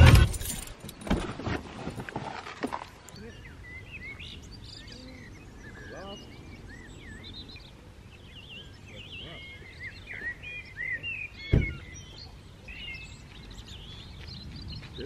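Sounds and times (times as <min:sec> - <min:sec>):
birds chirping and singing: 0:03.1 - 0:15.0
car door shutting: 0:11.5 - 0:11.9.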